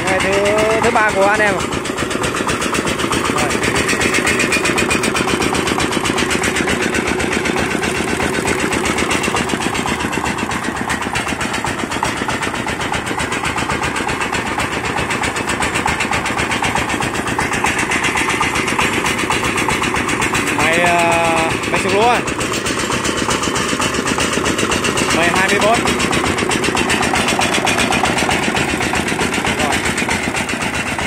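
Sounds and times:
diesel engine chugging: 0:00.0 - 0:31.0
rice thresher running: 0:00.0 - 0:31.0.

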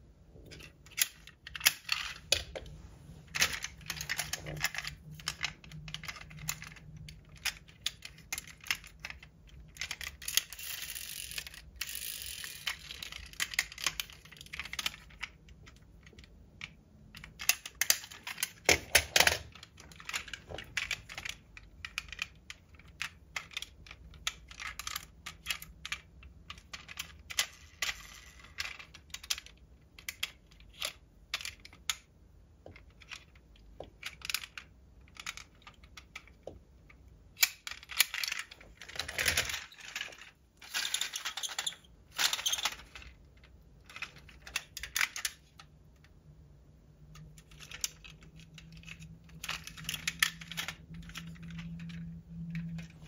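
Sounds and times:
metal toy cars clinking: 0:37.4 - 0:43.1, 0:47.4 - 0:53.0.

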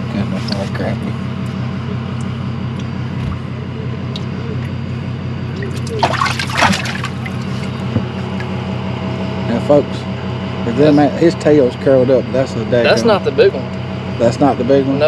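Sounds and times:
low hum: 0:00.0 - 0:15.0
fish splashing: 0:05.6 - 0:08.5
water sloshing and dripping: 0:05.6 - 0:08.5.

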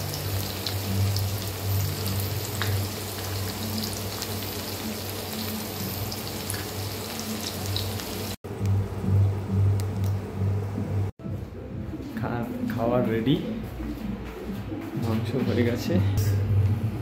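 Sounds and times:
onions sizzling in oil: 0:00.0 - 0:08.4.

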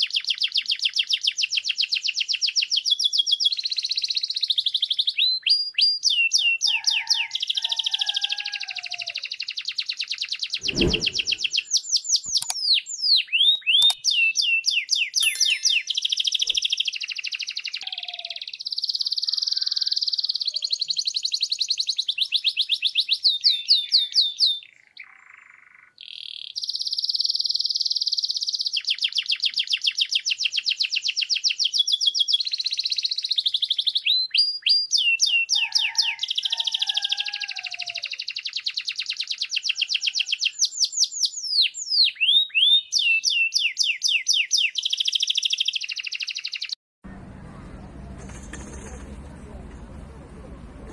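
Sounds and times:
canary singing trills: 0:12.2 - 0:46.8.

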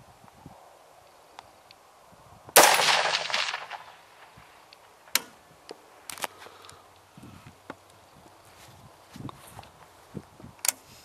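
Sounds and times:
rifle shot: 0:02.6 - 0:04.4.

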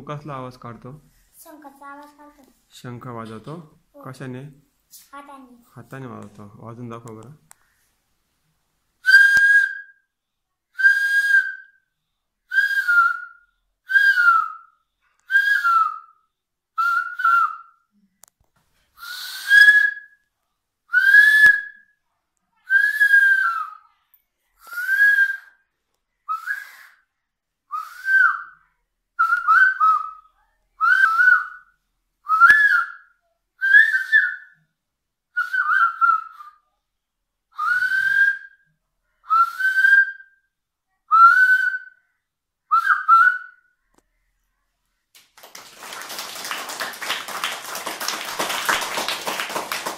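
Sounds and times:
boy blowing whistle-like blasts: 0:09.0 - 0:10.1, 0:10.8 - 0:11.9, 0:12.5 - 0:16.2, 0:16.8 - 0:17.9, 0:19.0 - 0:20.2, 0:20.9 - 0:21.9, 0:22.7 - 0:23.9, 0:24.6 - 0:25.6, 0:26.3 - 0:27.1, 0:27.7 - 0:28.6, 0:29.2 - 0:31.6, 0:32.3 - 0:34.6, 0:35.4 - 0:36.6, 0:37.5 - 0:38.6, 0:39.3 - 0:40.4, 0:41.1 - 0:42.1, 0:42.7 - 0:43.8.

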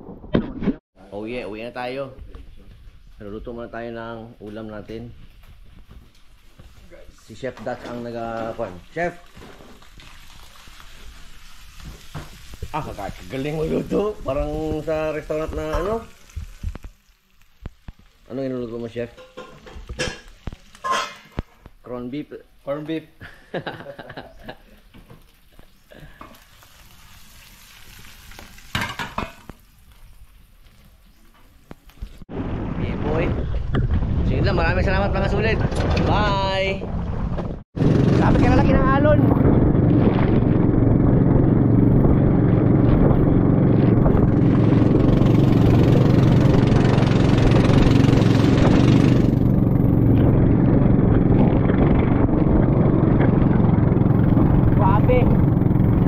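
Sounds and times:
meat sizzling in a pan: 0:06.4 - 0:21.8, 0:24.6 - 0:32.2
spatula scraping a pan: 0:20.6 - 0:21.4
boat motor running: 0:37.8 - 0:56.0.

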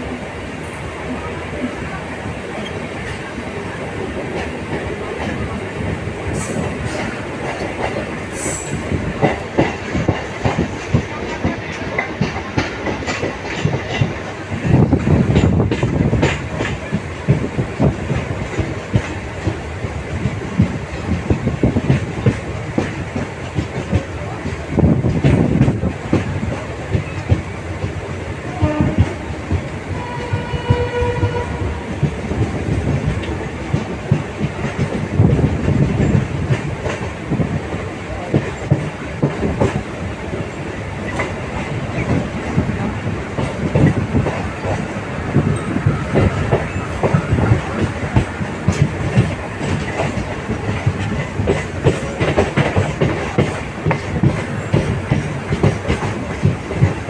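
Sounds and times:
train wheels clicking over rail joints: 0:01.6 - 0:57.0
train horn: 0:28.4 - 0:32.0.

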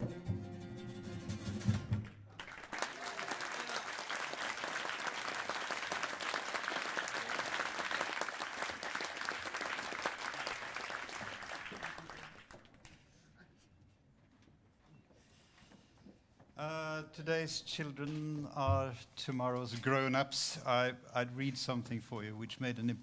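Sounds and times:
audience applauding: 0:02.0 - 0:13.0.

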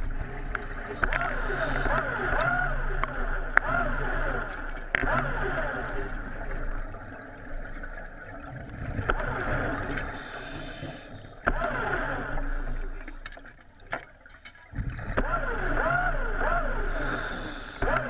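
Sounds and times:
underwater electric motor whining: 0:00.0 - 0:13.6, 0:14.9 - 0:18.0
bubbling: 0:00.0 - 0:18.0
scuba regulator breathing hiss: 0:01.0 - 0:01.9, 0:10.1 - 0:11.4, 0:16.9 - 0:17.9.

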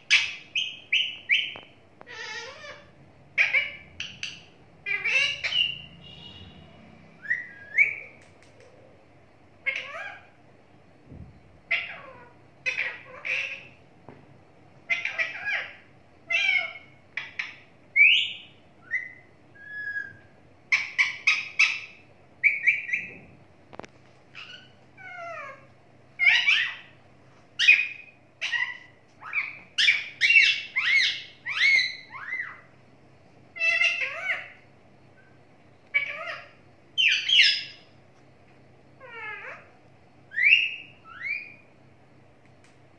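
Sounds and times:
parakeet squawking: 0:00.0 - 0:08.2, 0:09.6 - 0:10.4, 0:11.7 - 0:13.8, 0:14.8 - 0:23.2, 0:24.3 - 0:26.9, 0:27.6 - 0:32.7, 0:33.6 - 0:34.6, 0:35.9 - 0:37.9, 0:39.0 - 0:41.6.

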